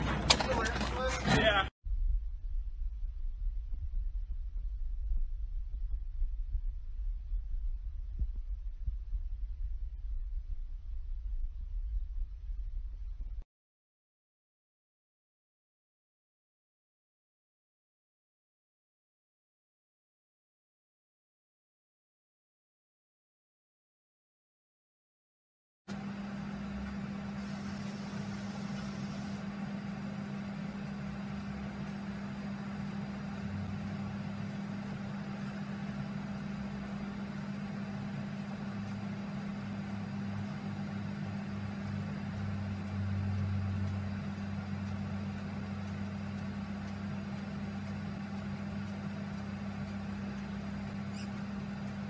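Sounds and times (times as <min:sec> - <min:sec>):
low mechanical hum: 0:00.0 - 0:13.4, 0:25.9 - 0:52.0.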